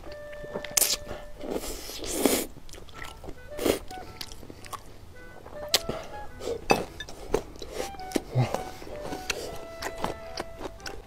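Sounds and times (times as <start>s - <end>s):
soft background music: 0.0s - 11.0s
wet chewing and mouth smacks: 0.1s - 6.2s, 6.8s - 11.0s
noodle slurp: 1.6s - 3.8s.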